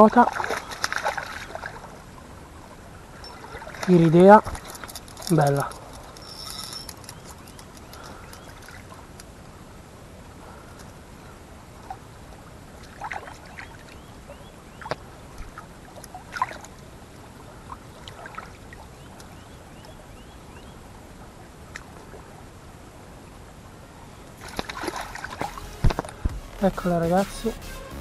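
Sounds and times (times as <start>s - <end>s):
water splashing: 0.0s - 2.1s, 3.1s - 6.6s, 24.3s - 27.6s
stream water running: 0.0s - 27.1s.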